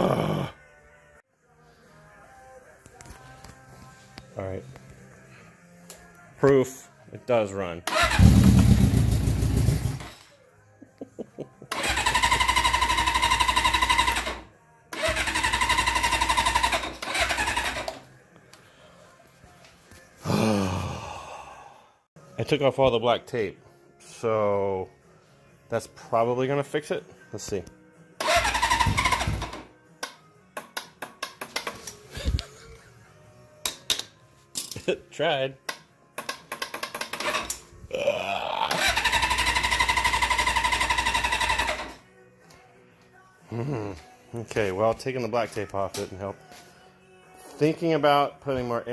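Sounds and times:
motorcycle starter cranking engine: 7.9 - 10.1, 11.7 - 14.4, 15.0 - 18.0, 28.2 - 29.7, 36.2 - 37.6, 38.7 - 42.0.

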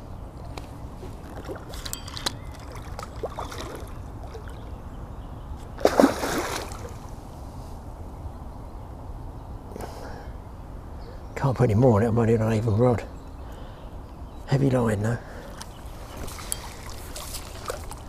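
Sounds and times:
water splashing and sloshing: 0.4 - 4.7, 5.8 - 7.1, 15.9 - 18.0.

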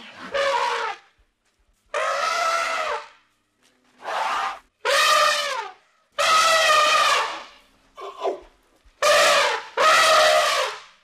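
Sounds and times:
elephant trumpeting: 1.9 - 3.1, 4.0 - 8.4, 9.0 - 10.8.

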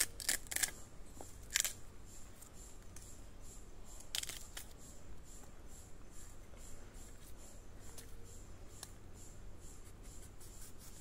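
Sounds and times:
knife cutting and scraping bamboo: 0.0 - 3.2, 4.0 - 4.9.

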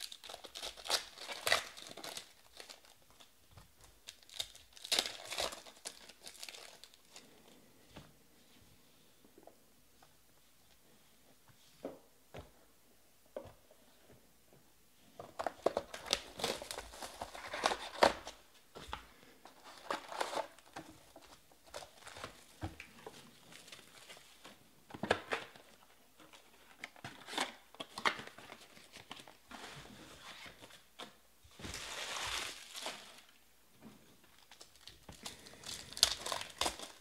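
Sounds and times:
foil wrappers crinkling: 0.0 - 3.3, 4.0 - 7.4, 15.6 - 18.3, 34.3 - 37.0.

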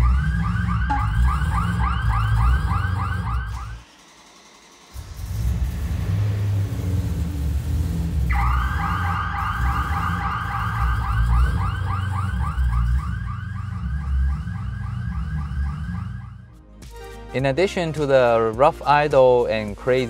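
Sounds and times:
warbling car alarm: 0.0 - 4.0, 8.3 - 16.5
car engine fast idle: 3.9 - 8.3.

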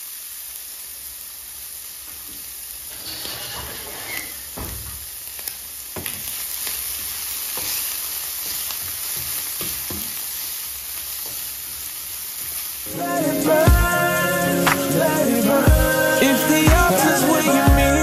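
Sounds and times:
bacon sizzling in a frying pan: 0.0 - 18.0
spatula scraping and tapping pan: 6.0 - 10.2.

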